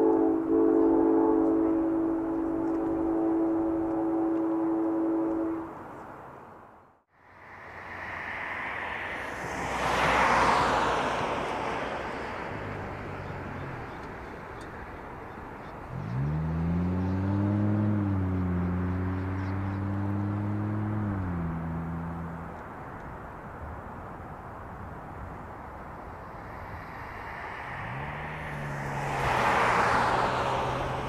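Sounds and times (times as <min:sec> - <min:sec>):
vehicle passing by: 0:07.2 - 0:14.1, 0:15.8 - 0:22.5, 0:25.9 - 0:31.0
engine revving: 0:15.9 - 0:22.5, 0:26.8 - 0:31.0.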